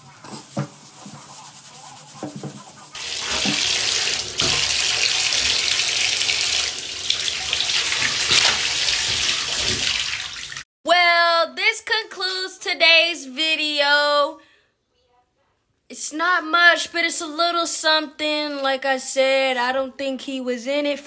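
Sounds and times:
faucet water running into tub: 0:02.1 - 0:10.7.

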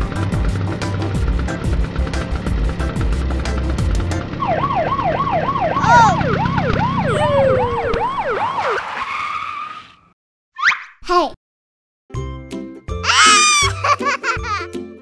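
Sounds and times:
police siren yelping: 0:04.4 - 0:09.2.

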